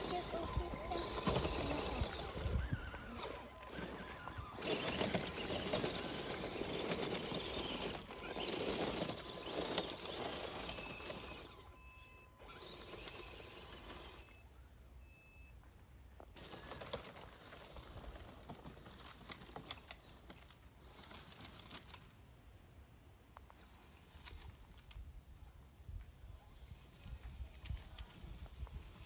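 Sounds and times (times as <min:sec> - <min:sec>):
tyres crunching through leaves: 0:00.0 - 0:11.6
small electric motors whirring: 0:00.0 - 0:14.5, 0:16.4 - 0:22.1, 0:23.5 - 0:25.1, 0:26.3 - 0:29.0.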